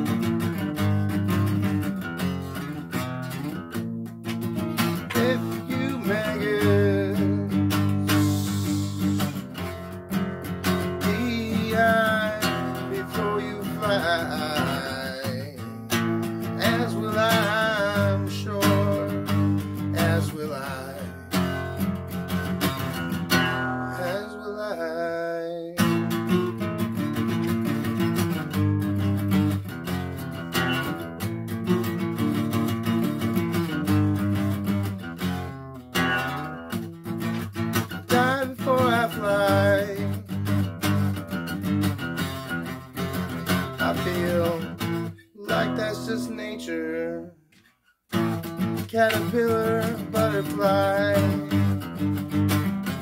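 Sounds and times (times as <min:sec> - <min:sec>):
acoustic guitar strumming: 0:00.0 - 0:53.0
man singing: 0:04.8 - 0:27.4, 0:37.1 - 0:47.4, 0:48.2 - 0:53.0.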